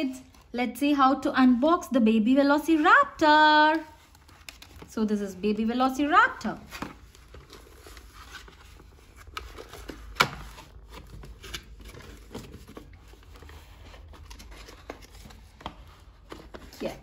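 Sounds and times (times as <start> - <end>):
cardboard packaging rustling: 6.4 - 17.0.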